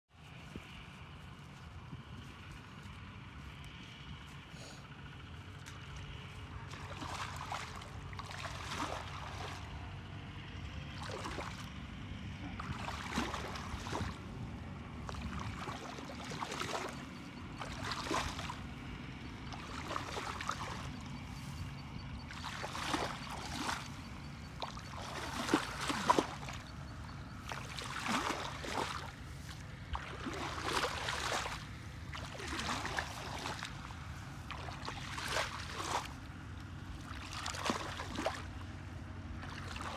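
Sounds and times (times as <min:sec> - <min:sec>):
muddy water splashing: 0:02.3 - 0:39.9.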